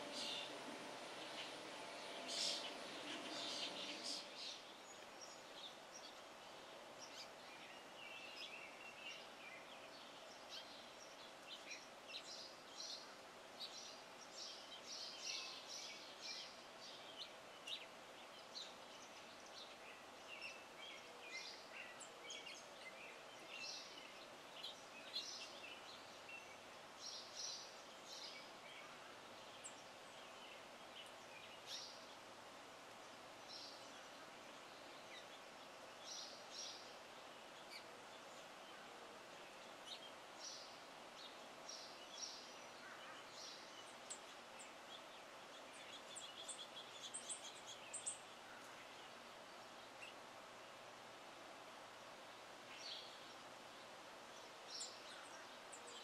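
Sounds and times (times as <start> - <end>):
faint steady hum: 0.0 - 56.0
songbirds chirping: 0.0 - 56.0.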